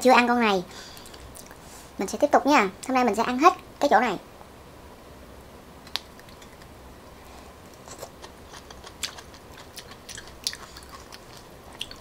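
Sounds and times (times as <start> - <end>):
chewing clicks: 7.7 - 12.0.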